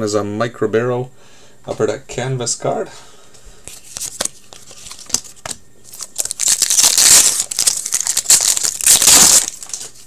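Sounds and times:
foil wrapper crinkling and tearing: 0:03.8 - 0:10.0.

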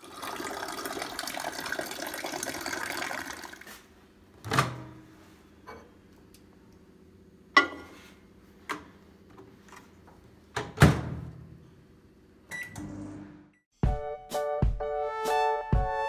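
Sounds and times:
microwave oven humming: 0:04.1 - 0:09.4, 0:10.1 - 0:13.6.

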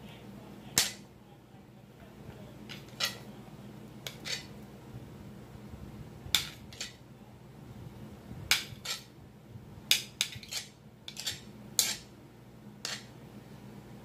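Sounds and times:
fork scraping ceramic plate: 0:02.7 - 0:03.3, 0:04.0 - 0:04.6, 0:06.4 - 0:07.0, 0:08.5 - 0:09.1, 0:09.9 - 0:12.1, 0:12.8 - 0:13.1.

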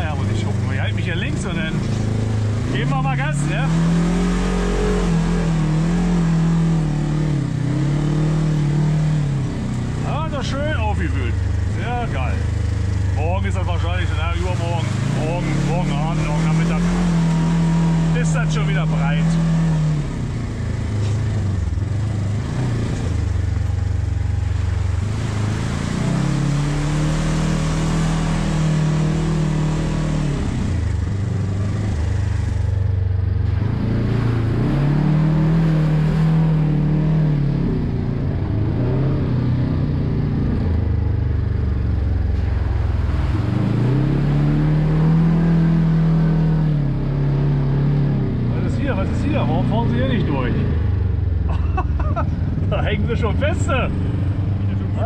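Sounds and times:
buggy engine revving: 0:00.0 - 0:55.0.

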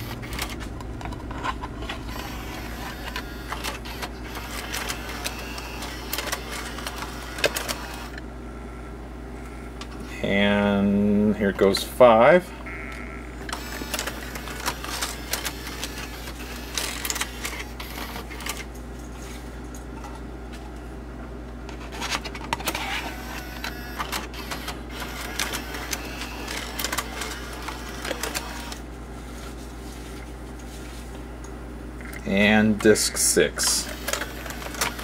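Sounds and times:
gears and levers clicking: 0:00.0 - 0:08.2, 0:12.9 - 0:18.6, 0:22.6 - 0:28.8, 0:33.8 - 0:35.0
steady low hum: 0:00.0 - 0:35.0
small motor whirring: 0:01.9 - 0:08.2, 0:12.8 - 0:18.3, 0:22.7 - 0:28.8, 0:33.8 - 0:35.0.

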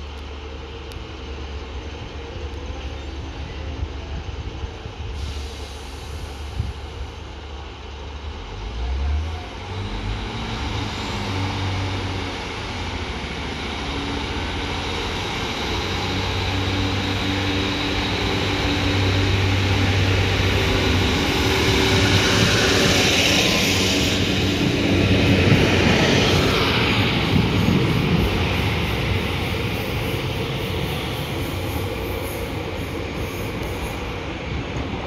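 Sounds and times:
diesel train engine running: 0:00.0 - 0:35.0
hiss: 0:05.0 - 0:07.4, 0:26.1 - 0:34.3.

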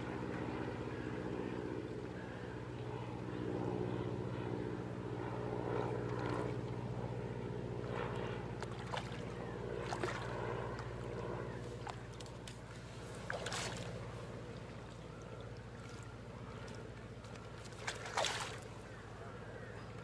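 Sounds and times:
sharp splashes: 0:08.7 - 0:10.4, 0:13.2 - 0:14.1, 0:17.6 - 0:18.8.

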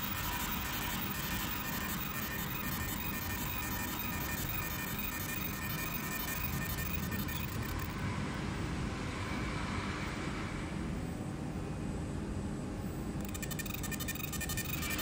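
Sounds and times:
crackling buzz of laser ablating: 0:00.0 - 0:08.0
laser marking machine humming: 0:00.0 - 0:08.1, 0:13.2 - 0:15.0.

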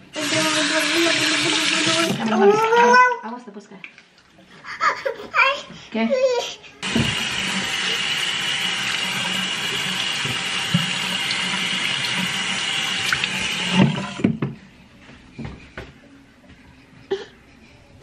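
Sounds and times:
faucet running: 0:00.0 - 0:03.2, 0:06.8 - 0:14.3.

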